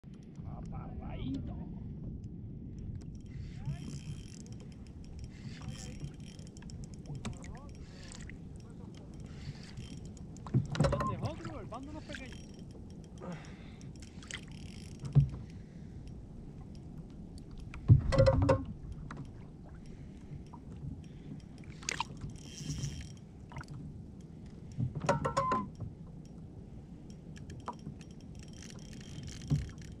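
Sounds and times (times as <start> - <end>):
fishing reel clicks: 3.1 - 10.8, 11.8 - 15.2, 21.4 - 23.2, 27.1 - 30.0
lapping water: 7.2 - 12.5, 13.2 - 14.9, 21.6 - 22.2.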